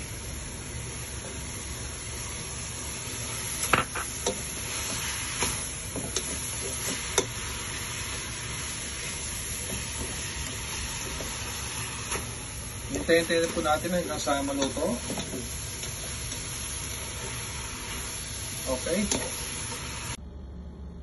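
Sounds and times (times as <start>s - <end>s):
vegetables sizzling in a frying pan: 0.0s - 20.2s.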